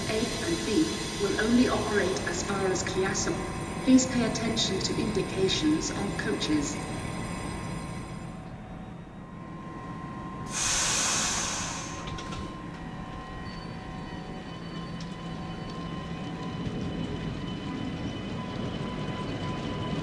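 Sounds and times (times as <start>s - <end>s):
electric train rumbling: 0.0s - 20.0s
compressed air hiss: 10.5s - 12.2s.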